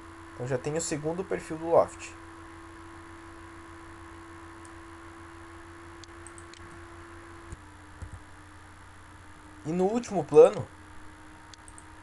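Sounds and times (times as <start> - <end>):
low electrical hum: 0.0 - 12.0
faint computer mouse clicks: 6.0 - 6.8, 11.5 - 11.9.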